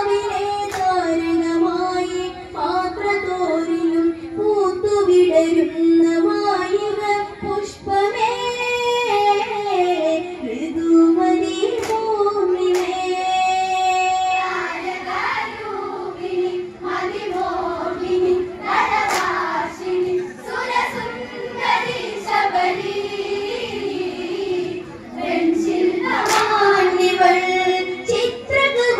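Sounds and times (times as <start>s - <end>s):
women singing in unison: 0.0s - 28.9s
sharp claps: 0.6s - 1.1s, 11.7s - 13.1s, 18.9s - 19.6s, 26.1s - 26.8s.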